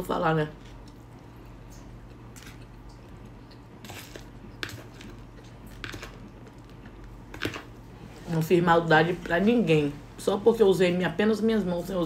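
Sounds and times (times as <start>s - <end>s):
steady low hum: 0.0s - 12.0s
quiet chewing: 0.6s - 7.3s.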